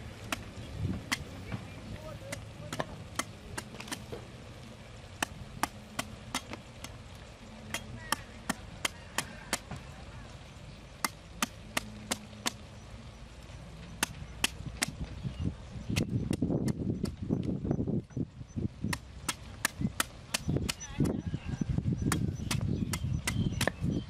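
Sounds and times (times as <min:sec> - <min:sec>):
cleaver chopping coconut husk: 0:00.2 - 0:04.3, 0:05.2 - 0:07.0, 0:07.6 - 0:10.0, 0:11.0 - 0:12.7, 0:14.0 - 0:15.1, 0:15.9 - 0:17.2, 0:18.8 - 0:23.9.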